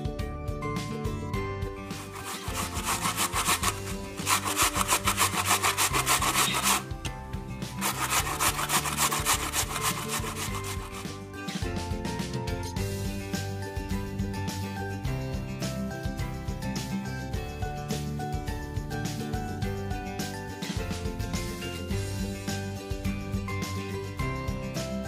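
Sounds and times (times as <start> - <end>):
vegetable grated on metal grater: 2.0 - 7.1, 7.8 - 11.2.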